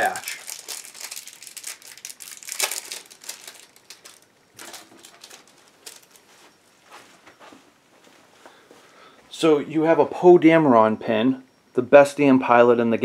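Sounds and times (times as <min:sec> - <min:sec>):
packaging clicking and rustling: 0:00.0 - 0:06.3.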